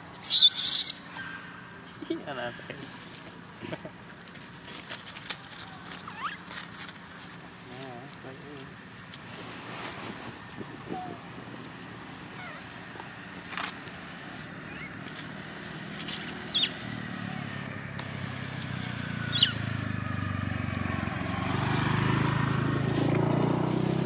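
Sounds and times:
vehicle engine humming: 0.0s - 24.0s
short sharp high squeaks: 0.1s - 1.5s, 6.0s - 6.7s, 14.6s - 15.0s, 19.3s - 19.6s.

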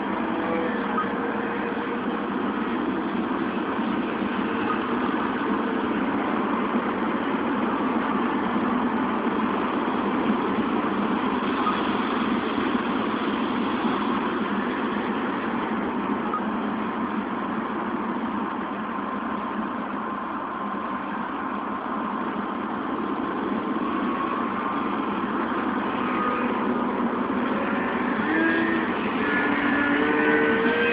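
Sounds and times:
model plane propeller droning: 23.5s - 30.9s.

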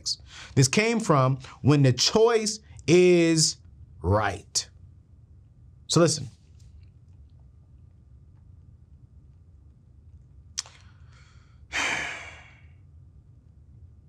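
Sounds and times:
man's lip click: 10.5s - 11.0s
long sigh: 11.3s - 12.8s.

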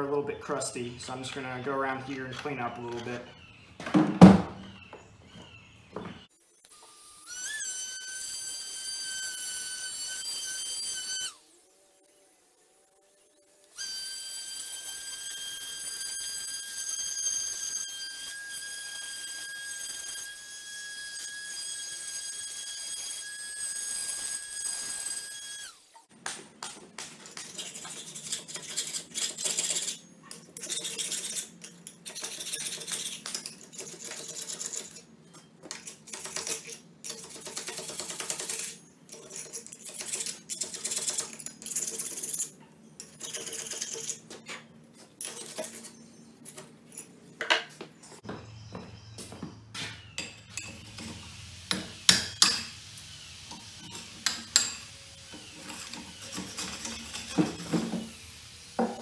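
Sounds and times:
file rasping on steel: 27.2s - 35.0s, 53.9s - 57.7s
hammer striking chisel: 50.2s - 52.7s.

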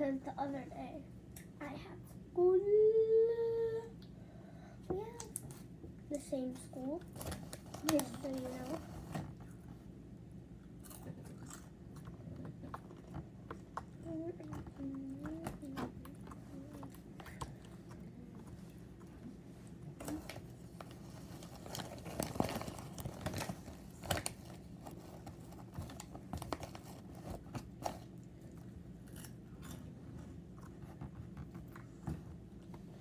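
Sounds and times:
crunchy chewing: 10.8s - 14.1s, 26.0s - 32.0s
plastic snack bag crinkling: 21.0s - 28.1s.

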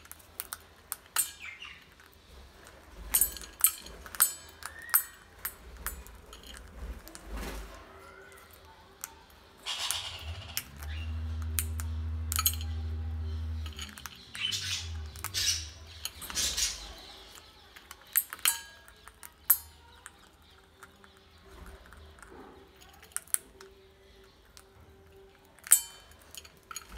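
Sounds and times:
beak clicking on metal bowl: 0.0s - 2.2s, 3.0s - 7.2s, 8.9s - 26.9s
steady low hum: 9.6s - 16.4s.

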